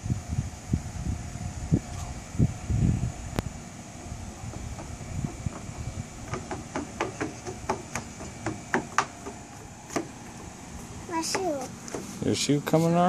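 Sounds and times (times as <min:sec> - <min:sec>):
child running on wooden boards: 0:04.0 - 0:12.2.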